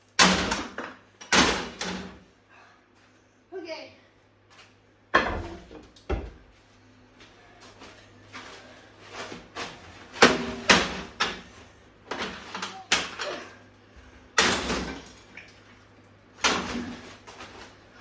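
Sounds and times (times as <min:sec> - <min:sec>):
hammer smashing television: 0:14.4 - 0:15.1, 0:16.4 - 0:17.1.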